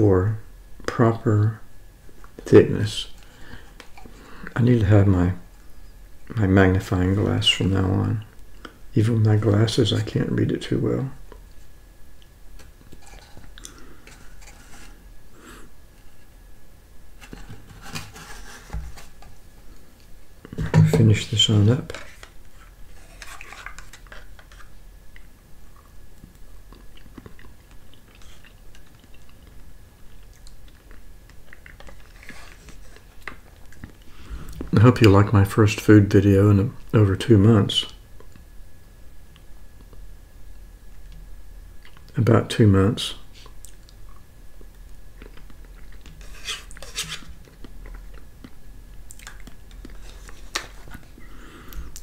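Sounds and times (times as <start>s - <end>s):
spoon scraping plastic cup: 12.6s - 15.0s
mouth sounds of eating: 25.1s - 34.7s, 43.2s - 50.3s.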